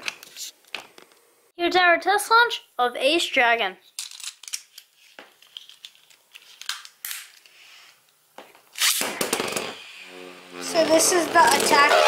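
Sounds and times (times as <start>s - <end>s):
ripcord pulled ripping burst: 8.8s - 9.8s.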